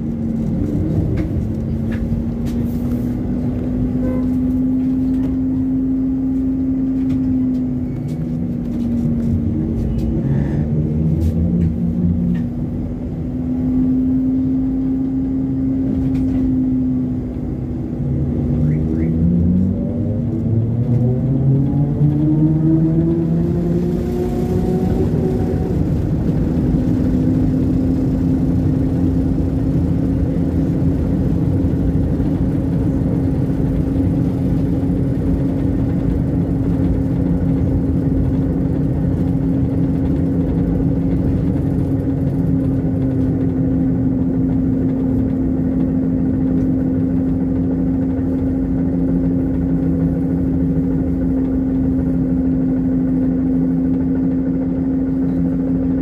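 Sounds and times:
low ride rumble: 0:00.0 - 0:56.0
trolleybus electric whine: 0:00.0 - 0:56.0.

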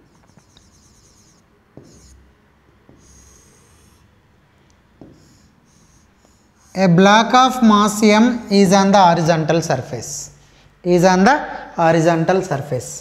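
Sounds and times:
pen scratching on screen: 0:00.0 - 0:04.2, 0:05.0 - 0:07.7
pen tapping on board: 0:00.1 - 0:02.2, 0:02.8 - 0:04.0, 0:05.0 - 0:06.4.

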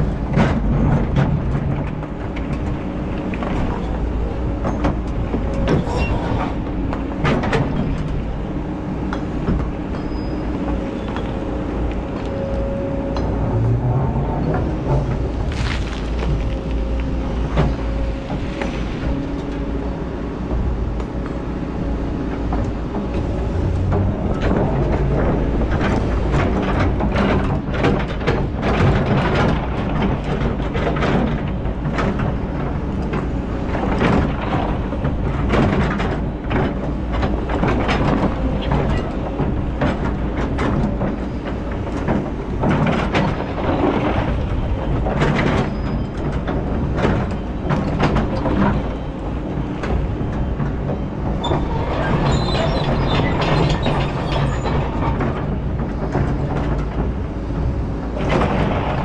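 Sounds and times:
excavator diesel engine: 0:00.0 - 0:59.0
bucket knocking and scraping stones: 0:14.9 - 0:16.8.

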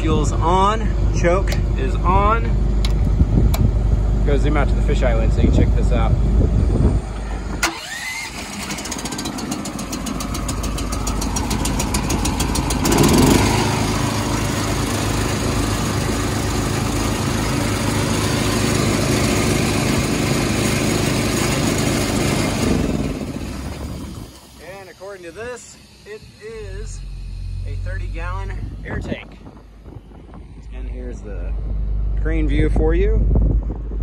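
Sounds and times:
engine running steadily: 0:00.0 - 0:34.0
electric starter whining: 0:06.8 - 0:31.2
engine cranking with rapid clicks: 0:07.6 - 0:15.5.

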